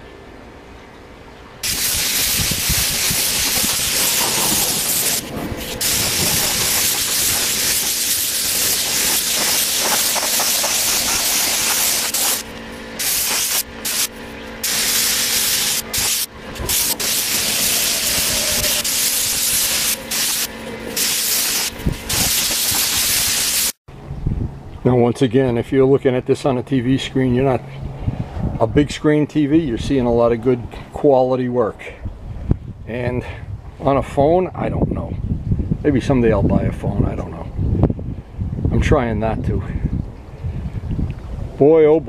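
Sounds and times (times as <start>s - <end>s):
paint spray gun hissing: 1.6s - 23.8s.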